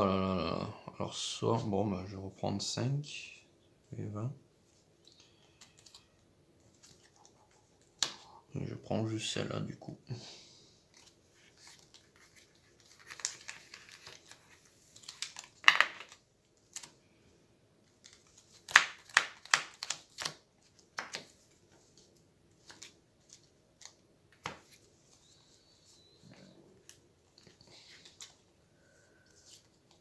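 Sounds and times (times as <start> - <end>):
playing cards rustling and sliding: 10.8 - 17.0, 17.9 - 30.0.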